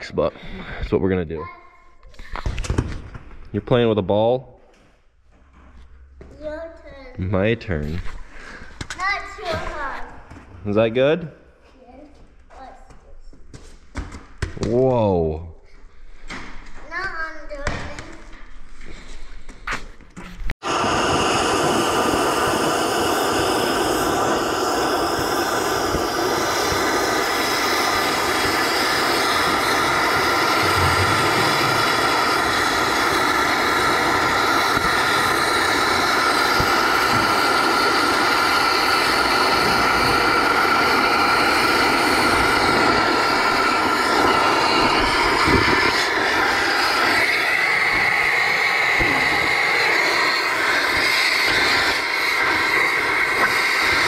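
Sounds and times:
cutting torch hissing: 20.6 - 54.0.

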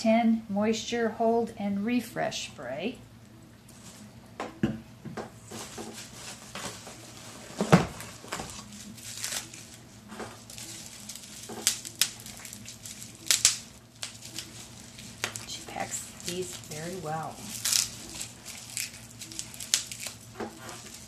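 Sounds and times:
bubble wrap crinkling: 5.4 - 21.0.

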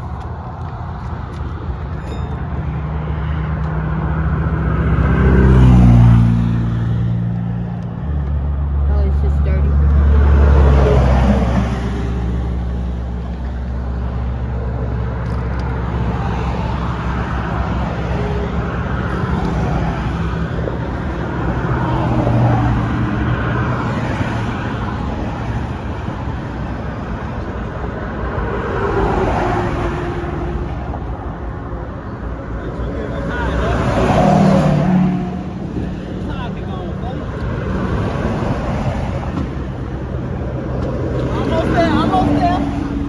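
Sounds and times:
road traffic rumble: 0.0 - 43.0.

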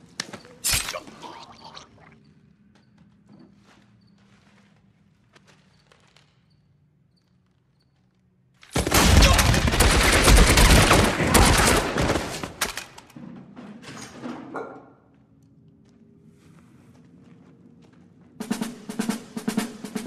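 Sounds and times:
automatic gunfire: 8.7 - 12.9
scattered gunshots: 8.7 - 13.0.

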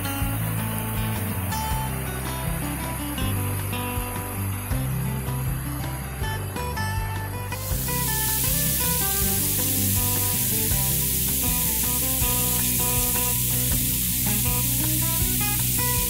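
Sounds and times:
plucked notes music: 0.0 - 16.0
waterfall splashing: 7.5 - 16.0.

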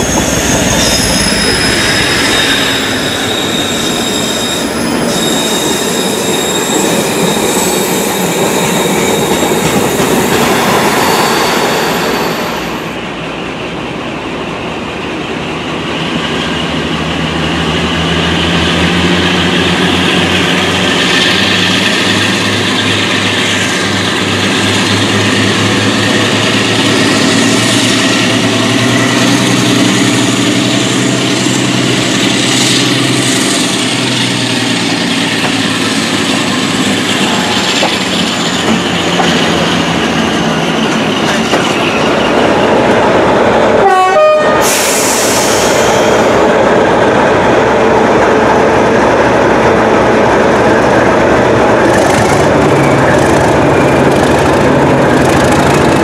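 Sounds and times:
diesel locomotive engine drone: 0.0 - 56.0.

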